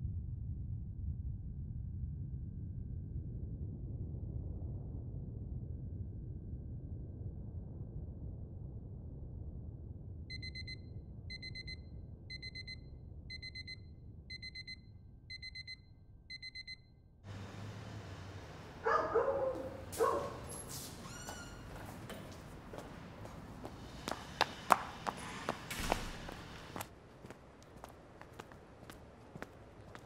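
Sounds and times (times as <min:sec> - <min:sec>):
digital alarm beeping: 0:10.3 - 0:16.9
outdoor street ambience: 0:17.2 - 0:30.0
sharp footstep clicks: 0:19.5 - 0:30.0.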